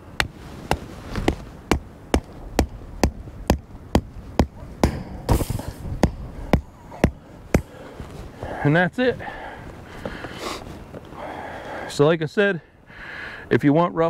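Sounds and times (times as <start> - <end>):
sharp knocks: 0.2 - 7.7.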